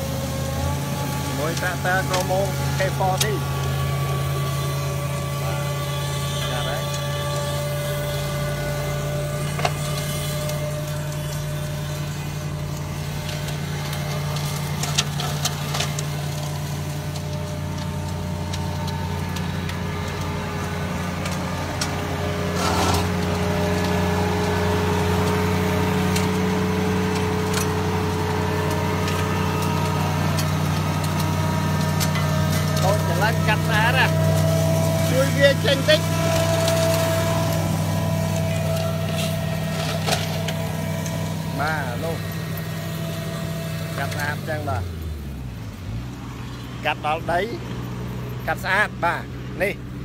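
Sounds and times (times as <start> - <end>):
flail mower cutting grass: 0.0 - 50.0
tractor diesel engine running: 0.0 - 50.0.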